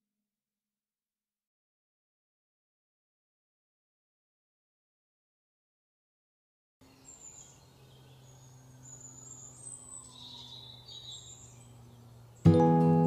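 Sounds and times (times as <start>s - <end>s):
small birds chirping: 6.8s - 13.0s
acoustic guitar music: 12.4s - 13.0s.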